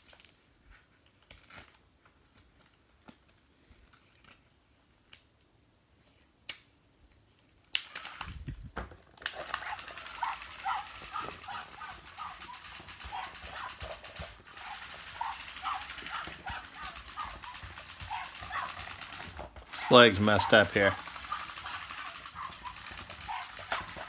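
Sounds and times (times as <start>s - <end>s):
toy motor thumping: 7.8s - 24.0s
plush toy rustling: 8.0s - 19.8s
electronic toy barking: 9.3s - 19.4s, 20.2s - 24.0s.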